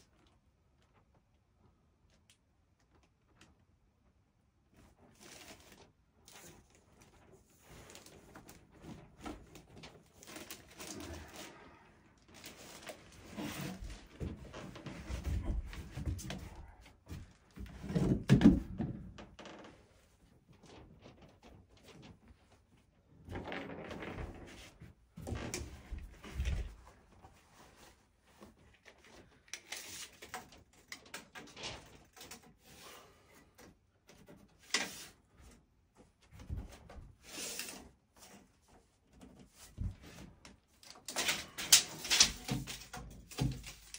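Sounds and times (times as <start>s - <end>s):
knocks and thumps on plywood floor: 13.8s - 19.3s.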